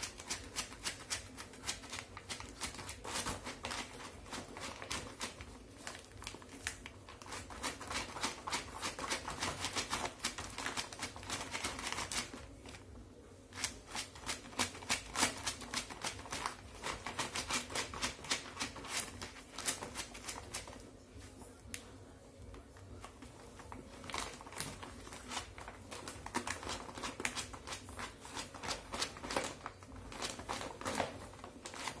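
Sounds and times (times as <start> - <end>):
shopping bag crinkling: 23.0 - 32.0.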